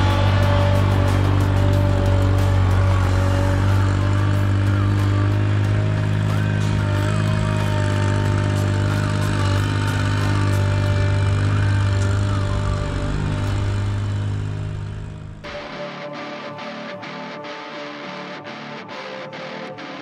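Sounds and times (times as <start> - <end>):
tractor engine running: 0.0 - 15.6.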